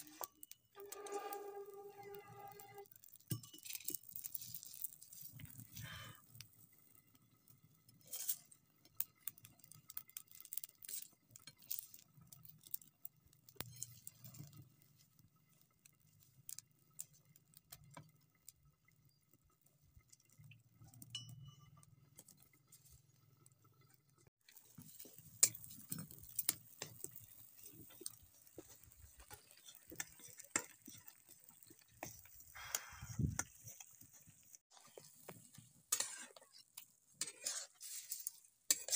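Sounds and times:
faint crackles and ticks: 0.0s - 38.9s
sizzling hiss with clicks: 23.9s - 38.9s.

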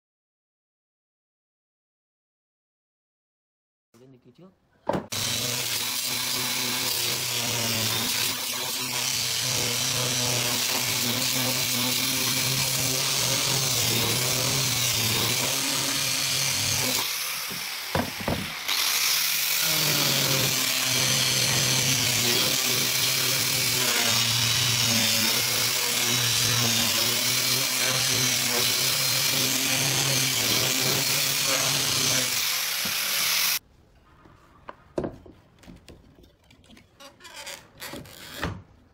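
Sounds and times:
angle grinder sanding wood: 5.1s - 33.6s.

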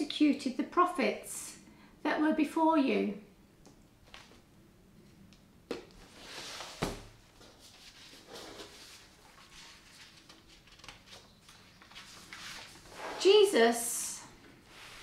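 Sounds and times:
soft rustling and handling noise: 4.0s - 13.6s.

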